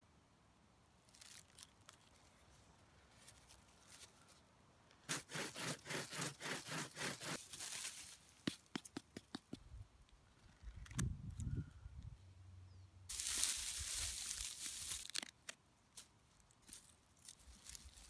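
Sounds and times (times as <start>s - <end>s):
knife scraping on wood: 5.1s - 7.5s.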